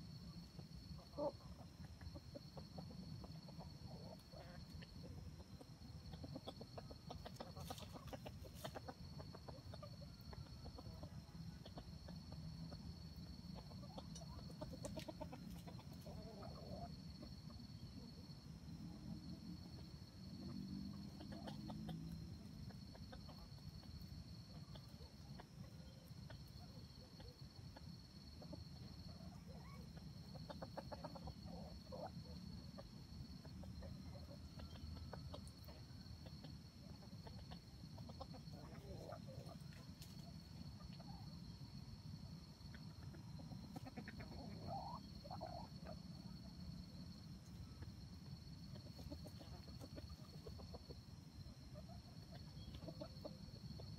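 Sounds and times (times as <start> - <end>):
junglefowl clucking: 0.0 - 53.9.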